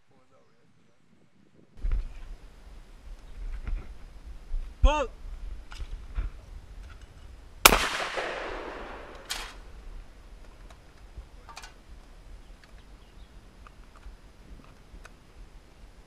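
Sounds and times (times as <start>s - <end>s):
shotgun shot echoing: 7.7s - 9.7s.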